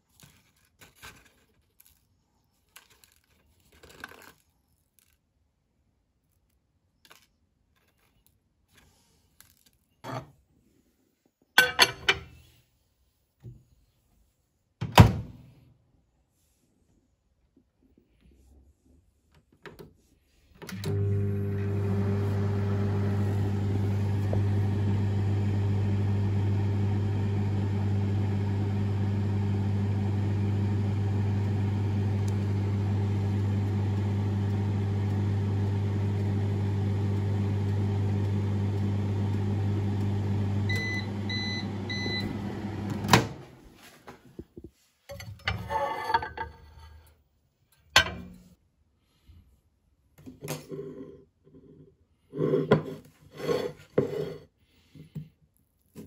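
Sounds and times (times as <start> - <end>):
microwave oven humming: 20.7 - 43.5
microwave short beeps: 40.6 - 42.7.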